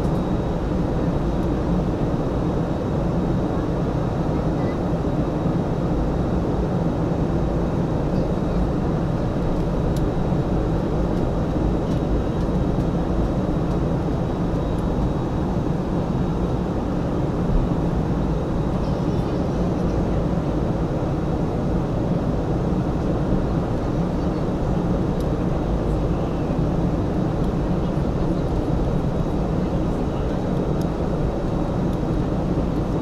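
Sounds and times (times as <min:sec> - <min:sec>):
airliner engine drone: 0:00.0 - 0:33.0.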